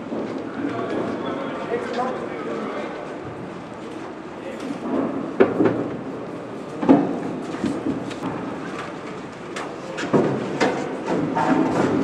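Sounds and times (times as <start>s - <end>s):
panels knocking and clattering: 10.0s - 12.0s.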